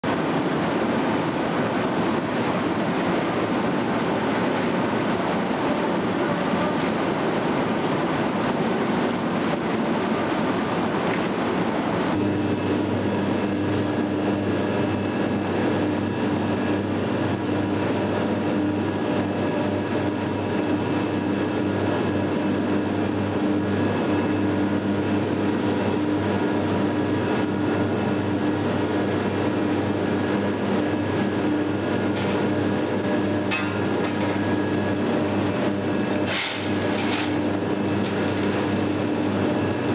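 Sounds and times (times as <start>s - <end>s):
industrial rumble: 0.0s - 39.9s.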